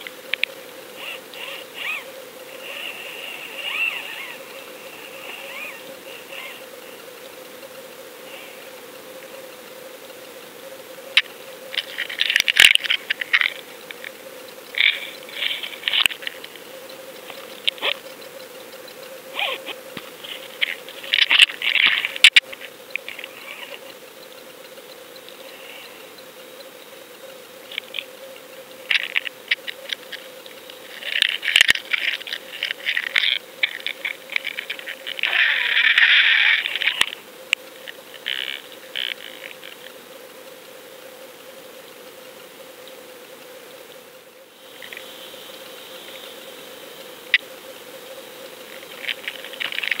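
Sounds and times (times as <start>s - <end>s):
steady hum: 0.0s - 50.0s
rapid clicking and rattling: 11.1s - 40.0s, 48.6s - 50.0s.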